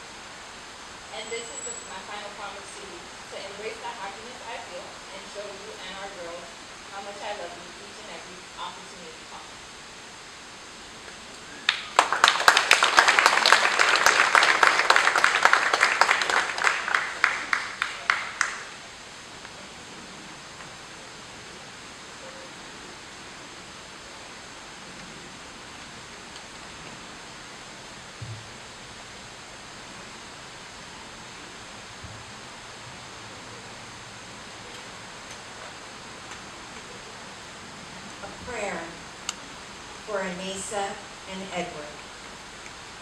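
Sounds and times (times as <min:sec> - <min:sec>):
steady faint hiss: 0:00.0 - 0:43.0
crowd clapping: 0:11.6 - 0:18.8.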